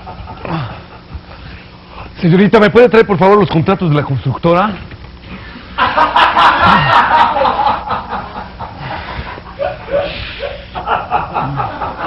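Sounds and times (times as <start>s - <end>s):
audience laughing: 5.8s - 12.0s.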